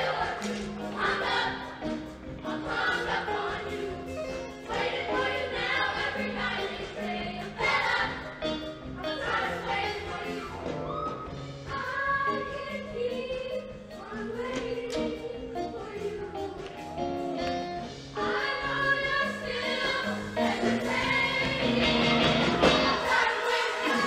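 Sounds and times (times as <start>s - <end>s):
choir singing harmonies: 0.0s - 16.6s, 18.1s - 24.0s
live band playing: 7.9s - 11.6s, 19.6s - 24.0s.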